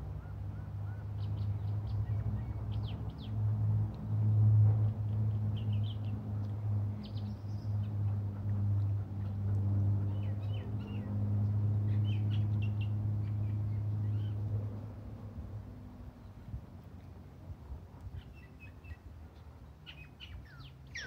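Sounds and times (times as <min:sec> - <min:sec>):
small birds chirping: 0:00.9 - 0:03.4, 0:05.0 - 0:08.2, 0:08.8 - 0:14.4, 0:18.0 - 0:21.0.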